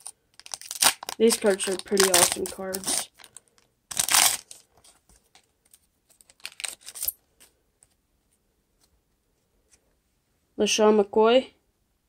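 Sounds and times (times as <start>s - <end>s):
foil pack ripping: 0.0s - 4.6s, 6.4s - 7.1s
wrapper crinkling: 0.0s - 7.2s.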